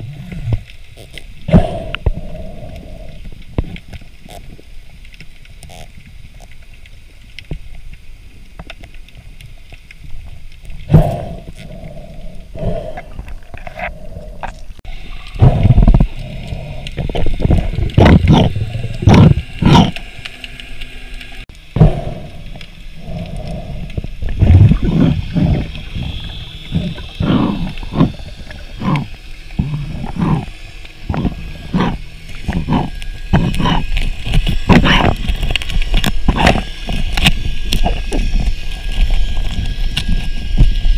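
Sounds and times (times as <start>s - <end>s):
muffled underwater rumbles and knocks: 15.4s - 20.0s, 23.2s - 40.9s.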